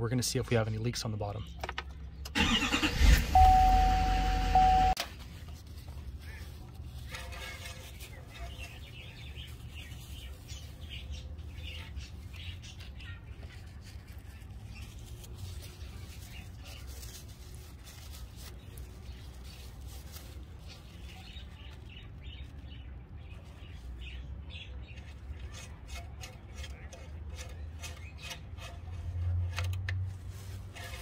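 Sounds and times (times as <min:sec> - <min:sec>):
birds chirping: 0:07.3 - 0:17.7, 0:18.4 - 0:28.7.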